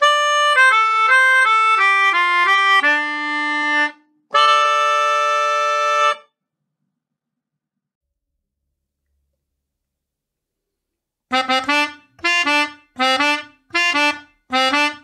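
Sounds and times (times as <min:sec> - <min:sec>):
melodica playing a jingle: 0:00.0 - 0:06.3, 0:11.3 - 0:15.0.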